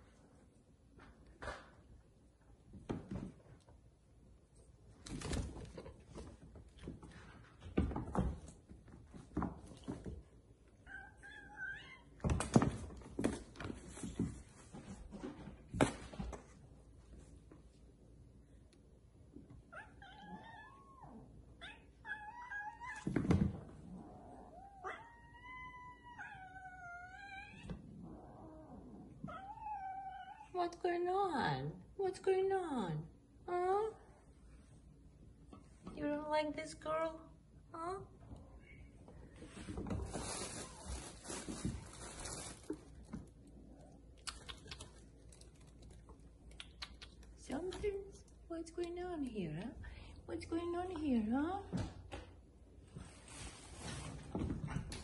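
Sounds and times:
kittens scuffling and rustling: 0:04.8 - 0:10.8, 0:12.2 - 0:18.0, 0:39.0 - 0:48.4, 0:51.7 - 0:55.0
kittens yowling: 0:24.5 - 0:27.7, 0:29.3 - 0:30.5.

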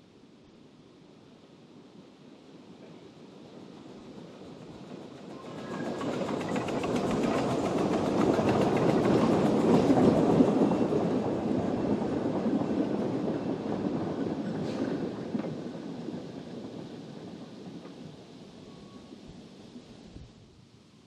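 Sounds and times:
steam locomotive exhaust beat: 0:03.4 - 0:19.8.

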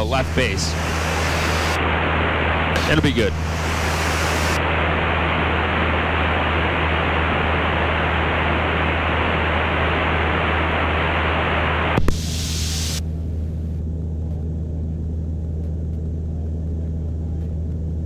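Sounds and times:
cabin noise hiss: 0:00.0 - 0:04.6
plane engine and propeller drone: 0:00.0 - 0:18.0.

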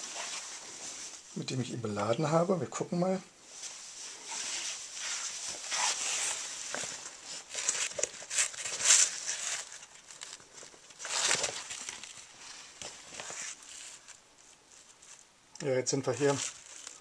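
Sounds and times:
backpack fabric rustling: 0:03.5 - 0:14.2.

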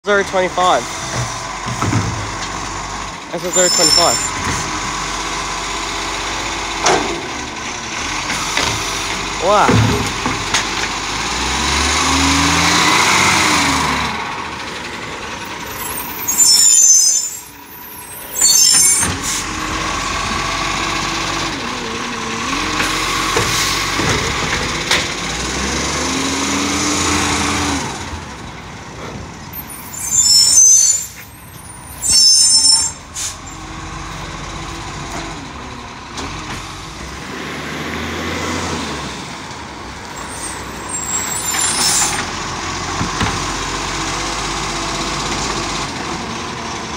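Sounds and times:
diesel engine revving: 0:00.1 - 0:46.9
air brake hisses: 0:32.0 - 0:33.4.

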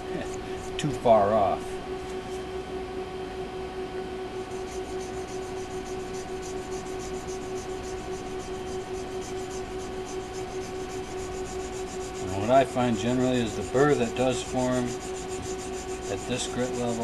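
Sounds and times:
steady low hum: 0:00.0 - 0:17.0
knife blade rubbing on board: 0:04.4 - 0:17.0.

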